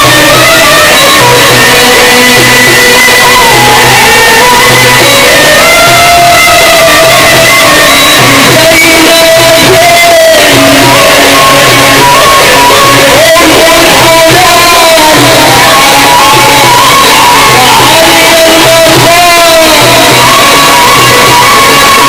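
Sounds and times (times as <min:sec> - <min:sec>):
instrumental backing: 0:00.0 - 0:22.0
man singing religious chant: 0:00.0 - 0:22.0.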